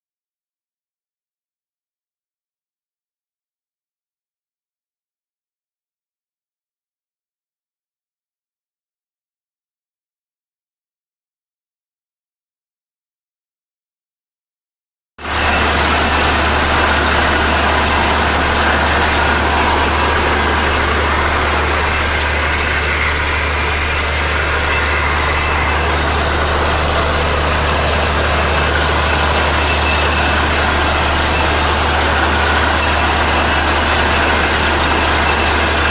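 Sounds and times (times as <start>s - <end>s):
drilling rig drone: 15.2s - 35.9s
water rushing out: 15.2s - 35.9s.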